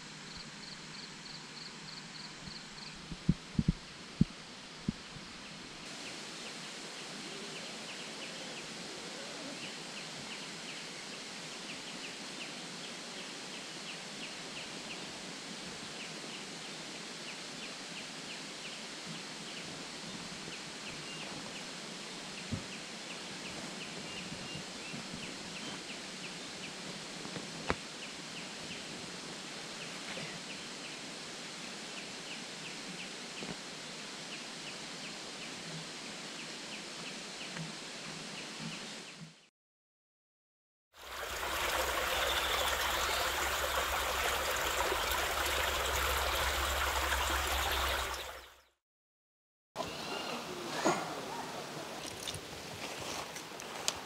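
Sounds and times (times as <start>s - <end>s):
steady hiss: 0.0s - 39.2s
insects chirping: 0.2s - 3.7s.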